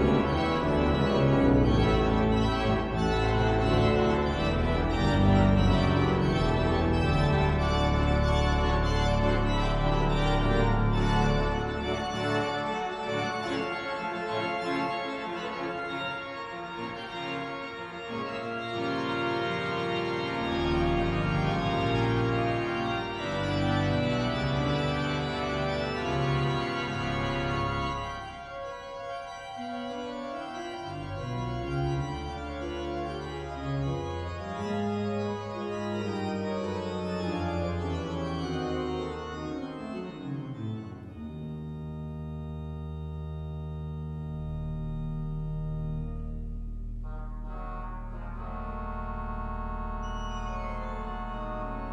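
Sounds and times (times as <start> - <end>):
pipe organ playing: 0.0 - 51.9.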